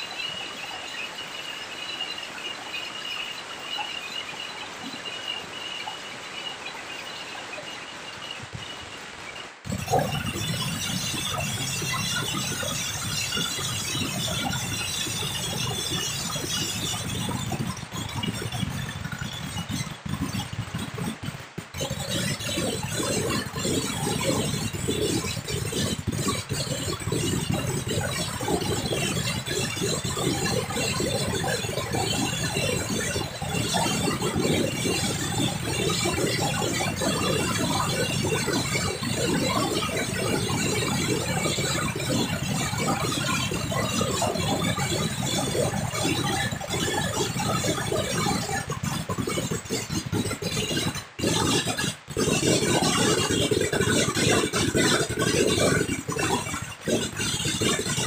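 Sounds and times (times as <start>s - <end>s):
firecrackers crackling: 7.4s - 10.2s.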